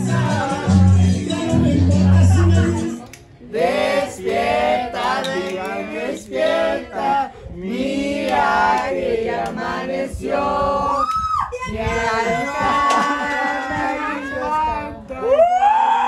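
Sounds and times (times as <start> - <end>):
voices singing together: 0.0 - 15.1.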